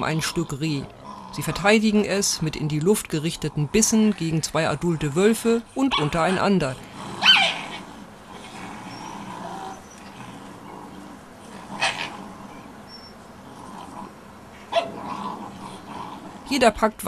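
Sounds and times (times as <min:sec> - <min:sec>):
wolf pups yelping: 0:05.8 - 0:16.5.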